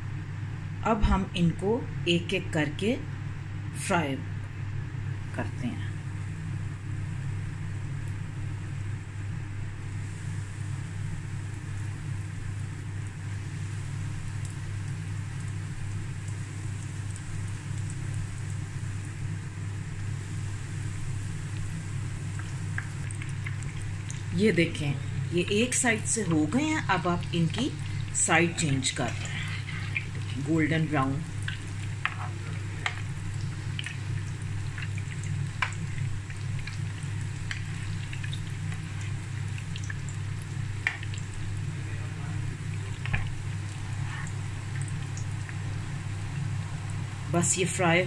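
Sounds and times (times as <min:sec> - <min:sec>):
steady low hum: 0:00.0 - 0:48.0
food sizzling in oil: 0:06.0 - 0:48.0
faint crackles: 0:25.1 - 0:47.4.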